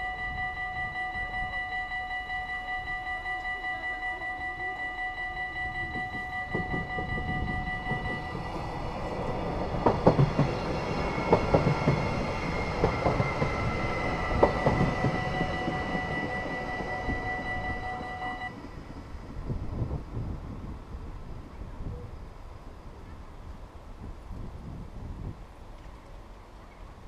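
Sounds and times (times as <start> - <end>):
level crossing bells ringing: 0.0 - 18.6
train passing: 0.0 - 24.2
train wheels knocking on rail joints: 5.8 - 18.4.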